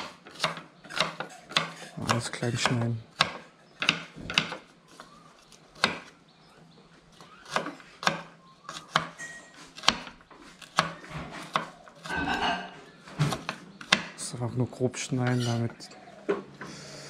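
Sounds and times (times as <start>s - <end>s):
knife chopping on wooden board: 0.0s - 5.1s, 5.8s - 6.1s, 7.2s - 14.2s.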